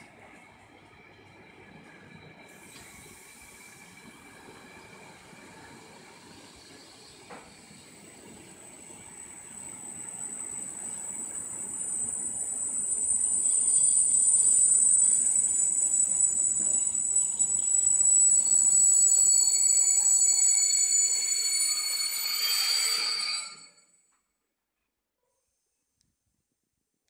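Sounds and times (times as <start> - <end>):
train wheels rumbling on rails: 0.0 - 22.0
high-pitched wheel squeal: 9.6 - 23.8.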